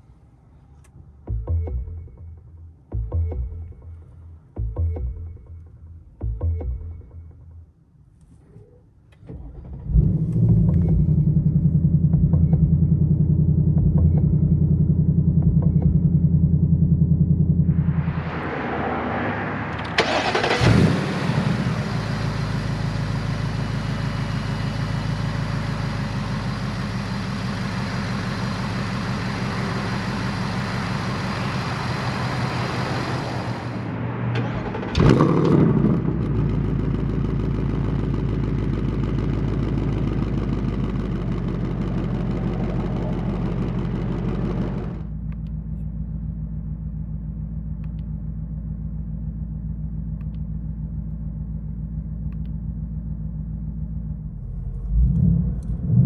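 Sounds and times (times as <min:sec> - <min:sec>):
car engine idling: 0:00.0 - 0:56.0
engine revving flare: 0:09.3 - 0:25.8, 0:28.0 - 0:45.4.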